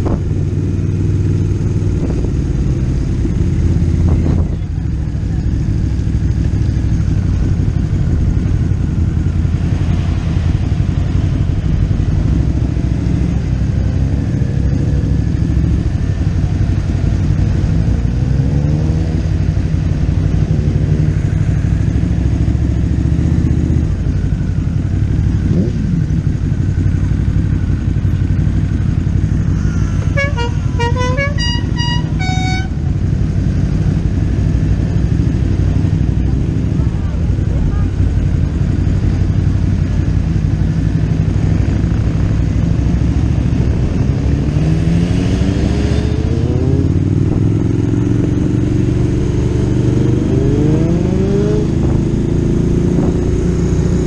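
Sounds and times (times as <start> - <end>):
motorcycle engine running: 0.0 - 54.0
multi-tone horn toots: 29.8 - 32.9.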